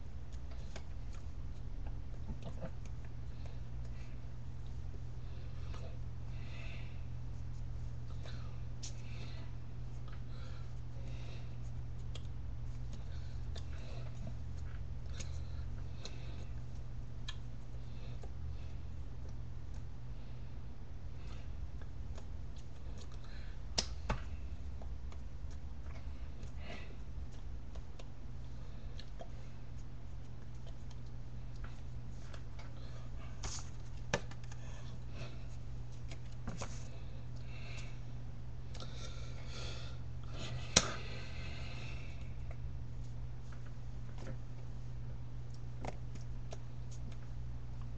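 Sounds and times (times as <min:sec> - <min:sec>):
low electrical hum: 0:00.0 - 0:47.9
clicks and rustles of hands: 0:00.2 - 0:04.8, 0:11.6 - 0:18.4, 0:21.2 - 0:28.2, 0:28.9 - 0:37.9, 0:45.4 - 0:47.9.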